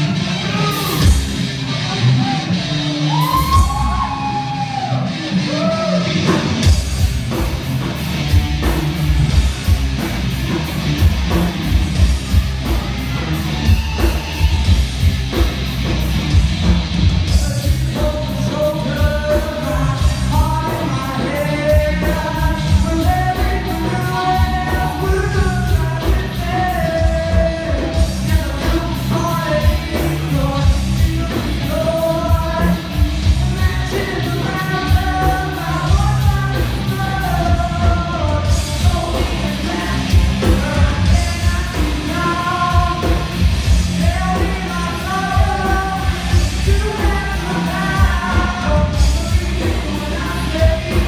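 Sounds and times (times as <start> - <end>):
person singing and yelling: 0.0 - 6.2, 17.3 - 51.0
heavy rock band playing: 0.0 - 51.0.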